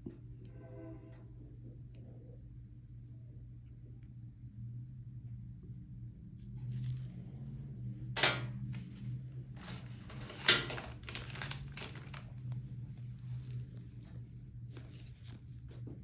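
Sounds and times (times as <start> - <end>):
steady low hum: 0.0 - 16.0
crinkling and rustling handling: 6.4 - 16.0.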